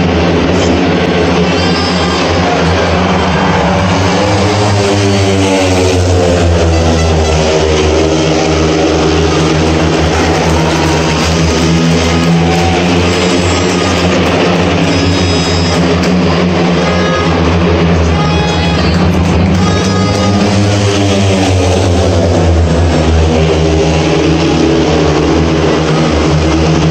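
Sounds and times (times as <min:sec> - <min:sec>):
motorcycles racing past: 0:00.0 - 0:18.0, 0:19.0 - 0:26.9.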